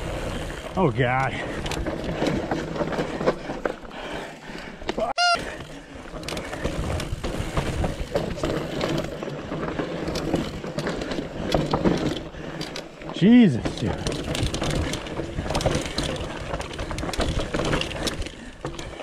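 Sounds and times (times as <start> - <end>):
bike rattling and knocking: 0.0 - 19.0
short high squeak: 5.2 - 5.5.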